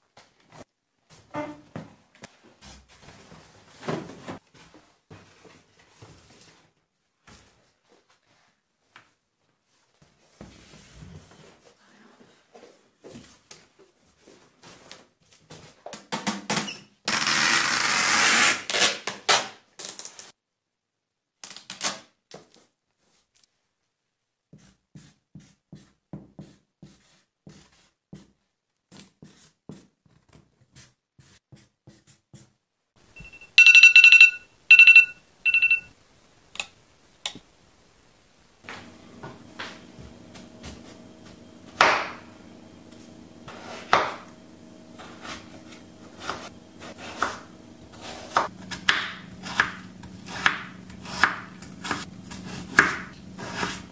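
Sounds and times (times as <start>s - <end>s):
short high electronic beeps: 33.2s - 35.9s
steady low hum: 38.7s - 53.9s.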